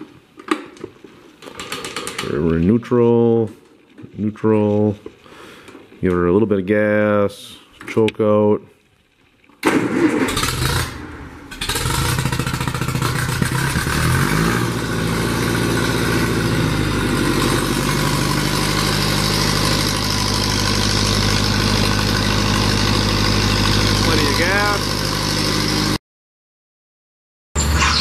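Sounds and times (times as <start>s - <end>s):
tractor engine starting and running: 1.4s - 3.0s, 9.6s - 26.0s.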